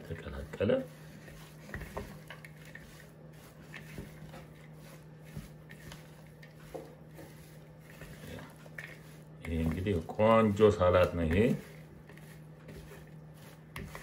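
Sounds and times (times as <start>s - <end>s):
spatula stirring salad: 0.0s - 14.0s.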